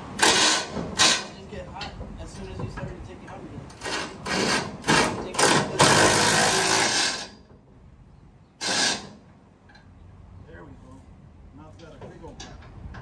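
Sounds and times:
impact wrench bursts: 0.2s - 1.3s, 3.8s - 7.4s, 8.6s - 9.2s.

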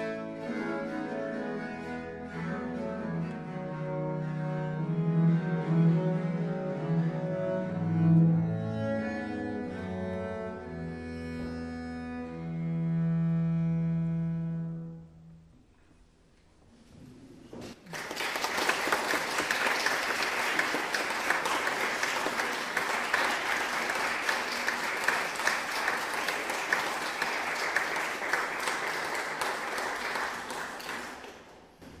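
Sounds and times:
audience applauding: 17.8s - 31.8s.

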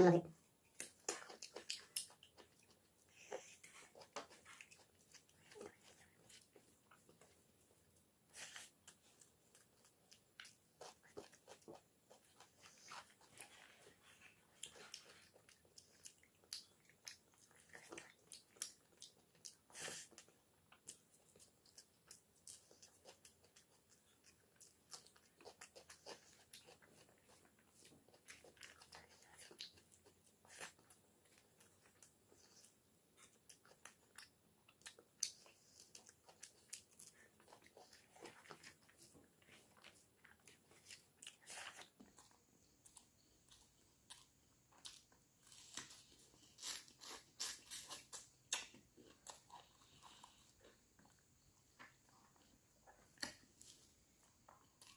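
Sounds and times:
chewing: 0.4s - 54.9s.

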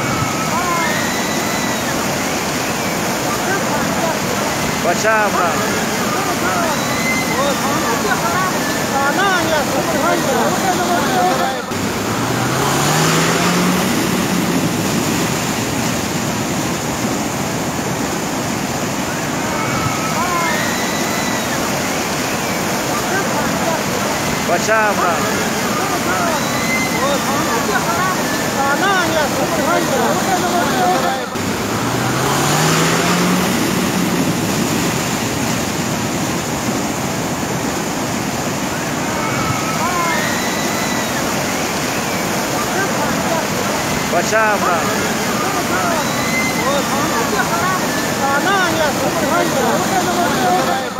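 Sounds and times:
floodwater rushing: 0.0s - 50.9s
vehicle engine: 7.4s - 19.4s, 22.1s - 39.1s.

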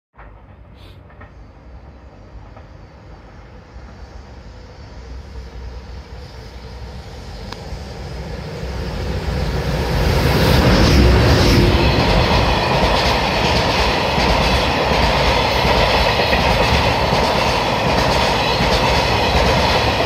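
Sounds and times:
freight train rumbling past: 0.2s - 20.0s.

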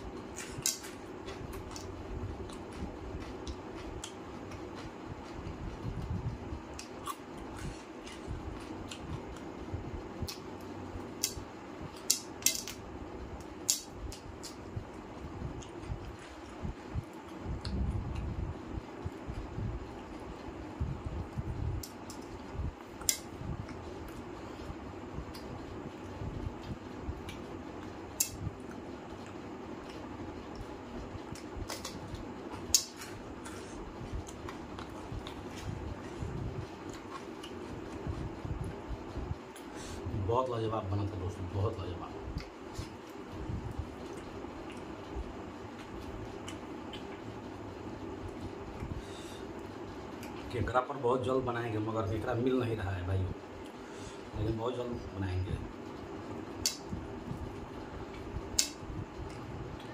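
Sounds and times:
steady low hum: 0.0s - 59.9s
chewing and mouth smacks: 0.2s - 5.4s, 6.7s - 9.5s, 13.6s - 18.4s, 26.6s - 38.3s, 45.7s - 47.3s
chewing: 31.3s - 36.2s, 36.8s - 38.1s.

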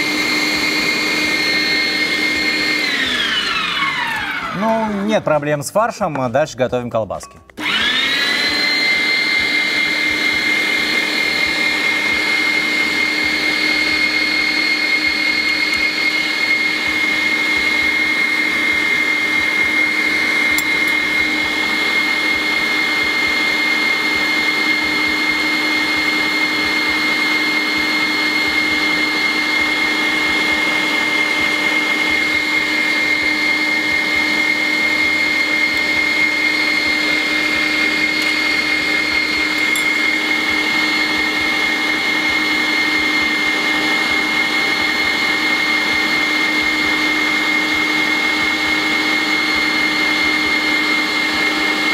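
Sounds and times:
electric meat grinder motor whine: 0.0s - 5.2s, 7.6s - 51.9s.

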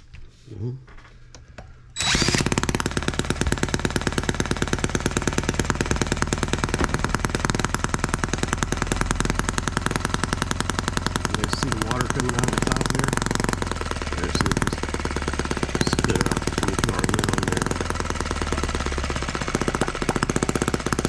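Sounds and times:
cordless drill whirring: 2.0s - 2.6s
engine popping: 2.0s - 21.0s.

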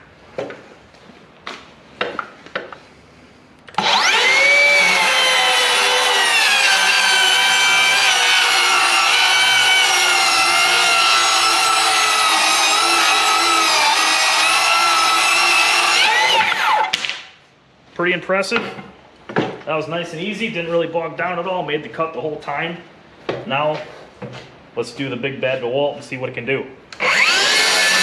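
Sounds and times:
circular saw cutting wood: 3.8s - 16.9s, 27.0s - 28.0s.

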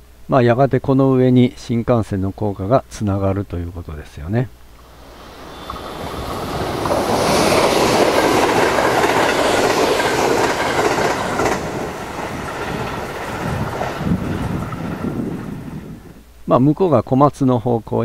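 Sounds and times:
electric train passing: 4.7s - 16.2s.

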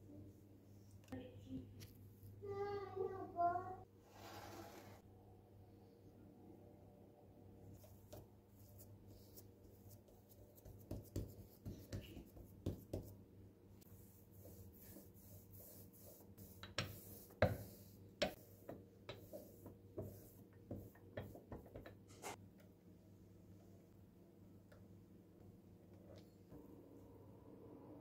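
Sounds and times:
rolling pin rubbing on dough: 13.9s - 21.8s.

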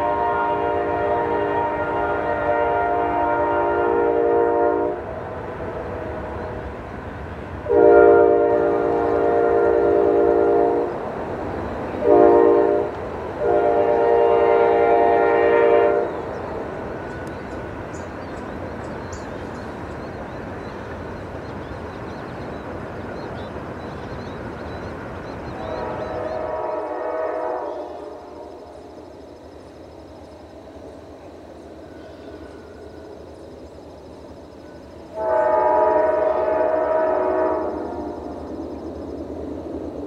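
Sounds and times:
locomotive air horn: 0.0s - 6.4s, 7.6s - 11.0s, 12.0s - 16.3s, 25.5s - 28.4s, 35.1s - 38.2s
train rolling past: 0.0s - 40.0s.

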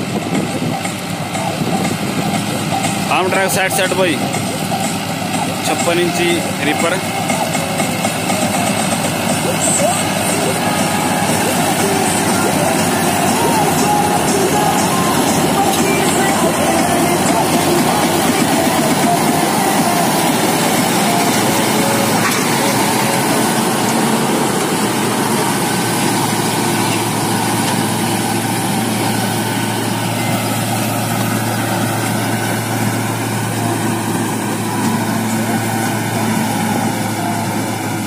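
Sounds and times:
tractor diesel engine: 0.0s - 38.0s.

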